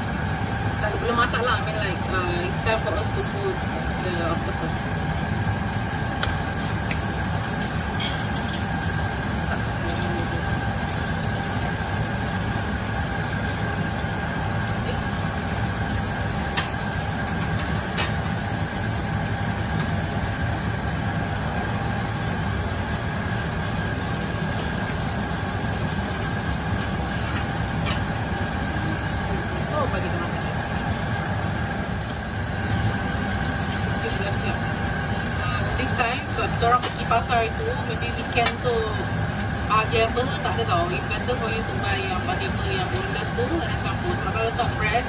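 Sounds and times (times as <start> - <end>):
food simmering in a wok: 0.0 - 37.6, 38.2 - 39.7.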